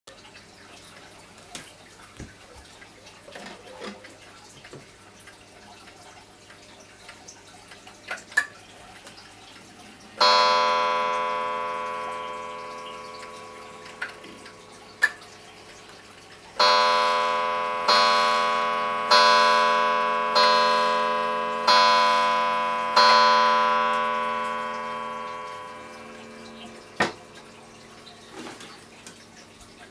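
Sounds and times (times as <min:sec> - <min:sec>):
wall clock chime strikes: 0:10.2 - 0:15.2, 0:16.6 - 0:28.0.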